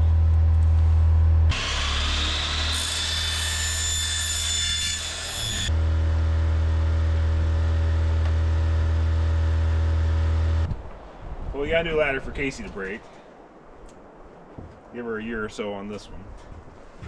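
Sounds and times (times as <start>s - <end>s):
steady low hum: 0.0s - 2.7s, 5.7s - 17.0s
power saw cutting metal: 1.5s - 10.7s.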